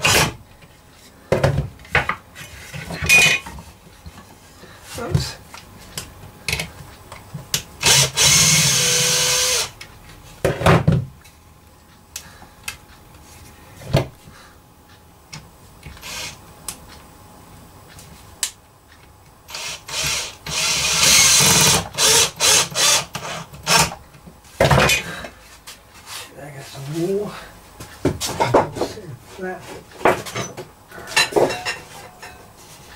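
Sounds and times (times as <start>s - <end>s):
electric drill driving screws: 7.8s - 9.8s, 16.0s - 16.4s, 19.5s - 23.9s.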